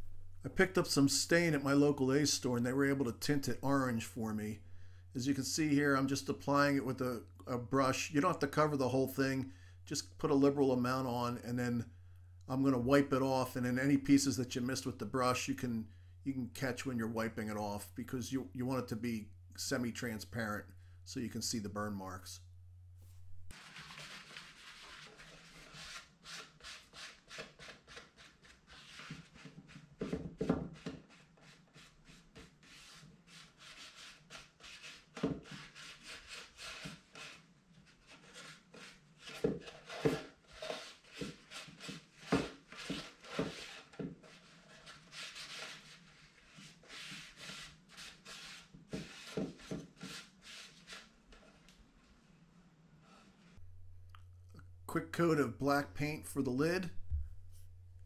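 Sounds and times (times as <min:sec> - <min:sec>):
cloth rubbing on wood: 0:23.0 - 0:52.2.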